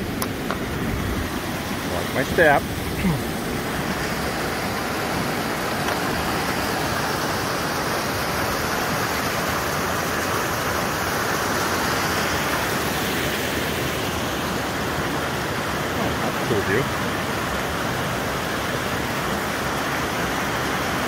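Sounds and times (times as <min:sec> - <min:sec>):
creek rushing over rocks: 0:00.0 - 0:21.0.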